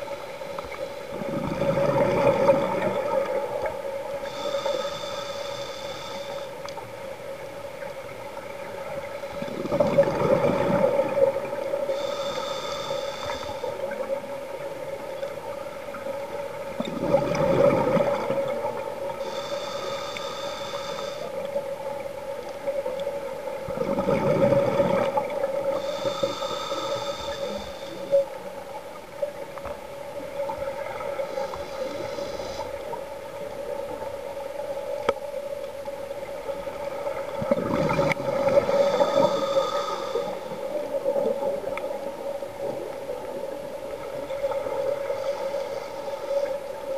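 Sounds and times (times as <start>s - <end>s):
regulator inhale hiss: 2.4s - 7.2s, 10.9s - 14.3s, 18.2s - 22.1s, 25.0s - 28.5s, 30.7s - 34.0s, 37.9s - 42.0s, 43.9s - 46.9s.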